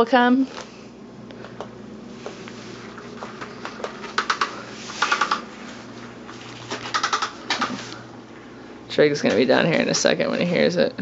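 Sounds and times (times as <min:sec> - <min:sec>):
rapid clicking: 0:03.8 - 0:05.5, 0:06.7 - 0:07.8.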